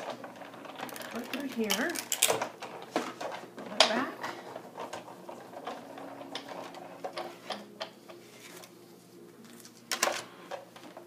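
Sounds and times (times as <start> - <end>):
hand-cranked die-cutting machine: 0.0 - 8.7.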